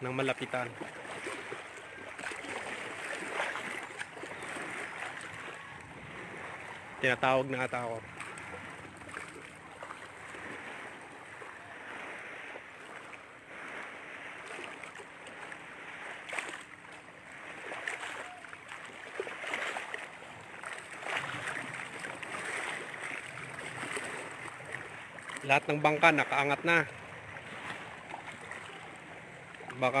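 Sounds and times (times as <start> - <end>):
water lapping against shoreline: 0.0 - 30.0.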